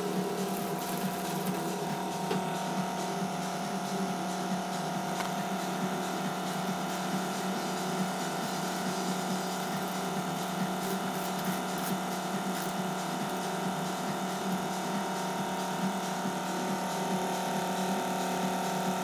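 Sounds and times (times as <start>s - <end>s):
small motor humming and whining: 0.0s - 19.0s.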